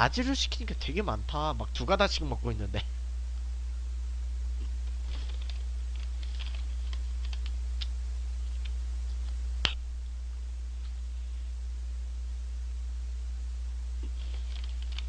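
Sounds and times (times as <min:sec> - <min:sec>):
steady low hum: 0:00.0 - 0:15.0
paper carton crackles and clicks: 0:04.8 - 0:07.6, 0:14.0 - 0:15.0.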